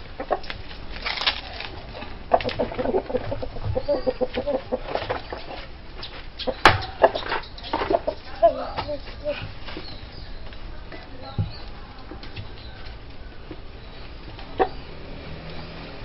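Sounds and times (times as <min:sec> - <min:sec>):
chickens clucking: 0:00.0 - 0:16.0
sharp knocks: 0:06.6 - 0:07.9.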